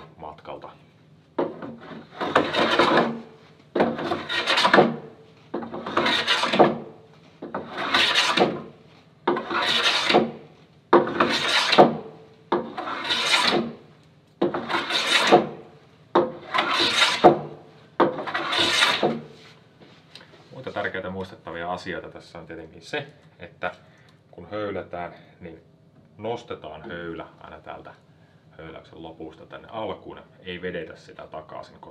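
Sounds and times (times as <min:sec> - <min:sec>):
hand plane rasping on wood: 0:01.7 - 0:03.2, 0:03.8 - 0:05.0, 0:05.7 - 0:06.8, 0:07.6 - 0:08.6, 0:09.3 - 0:10.4, 0:11.0 - 0:12.0, 0:12.6 - 0:13.8, 0:14.5 - 0:15.6, 0:16.3 - 0:17.4, 0:18.2 - 0:19.2.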